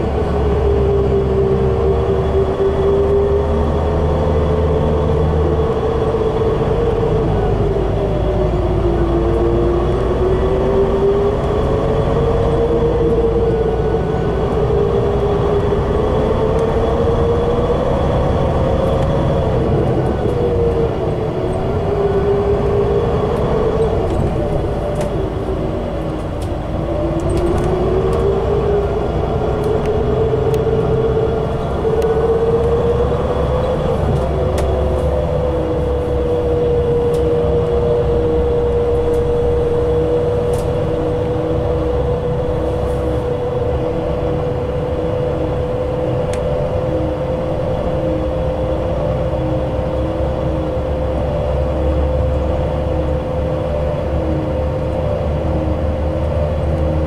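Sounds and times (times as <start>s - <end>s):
bus engine low drone: 0.0s - 57.0s.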